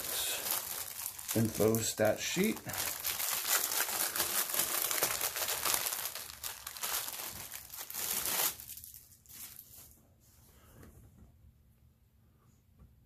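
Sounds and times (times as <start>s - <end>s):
plastic wrapping crinkling and tearing: 0.0s - 10.0s.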